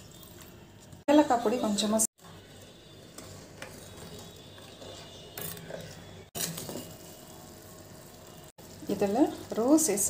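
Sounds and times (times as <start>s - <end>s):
ladle scraping metal pot: 2.6s - 7.1s.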